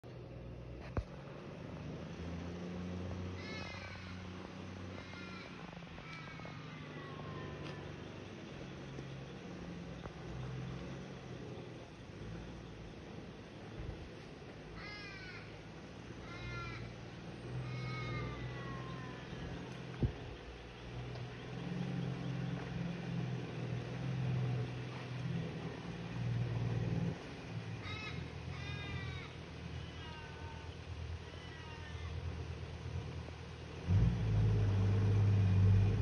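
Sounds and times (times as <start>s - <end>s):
engine labouring: 0.0s - 36.0s
birds cawing: 3.4s - 8.0s, 14.7s - 19.6s, 27.8s - 32.3s.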